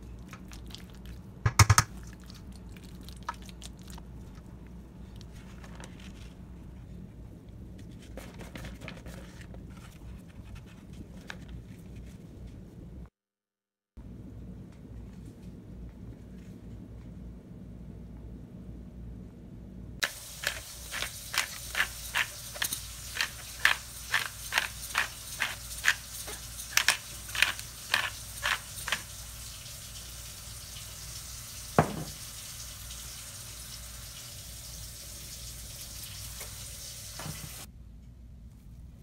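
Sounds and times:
pepper grinder strokes: 20.0s - 29.2s
watery hiss from pot: 20.0s - 37.7s.

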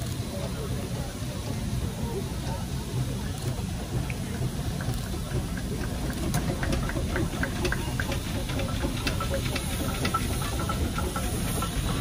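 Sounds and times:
steam traction engine rumbling: 0.0s - 12.0s
light ticking and clanking: 3.4s - 12.0s.

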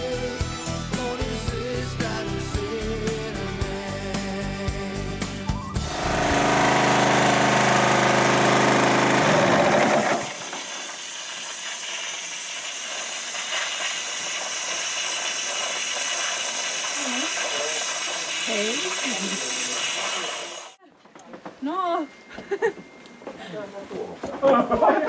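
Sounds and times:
air compressor hissing: 5.8s - 20.8s.

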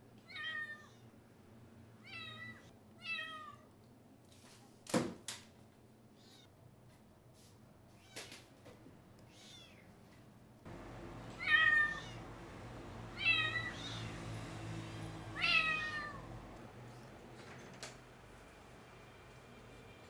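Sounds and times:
kitten meowing: 11.4s - 12.2s, 13.2s - 14.1s, 15.4s - 16.3s.

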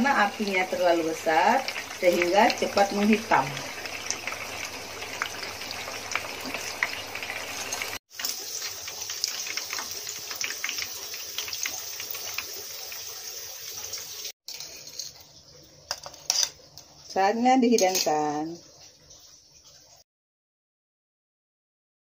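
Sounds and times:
oil sizzling and crackling: 0.0s - 20.0s.

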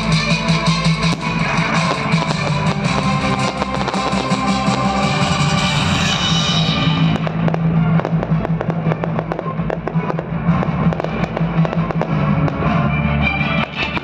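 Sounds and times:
music: 0.0s - 14.0s
fireworks popping and cracking: 1.0s - 12.8s, 13.6s - 14.0s.

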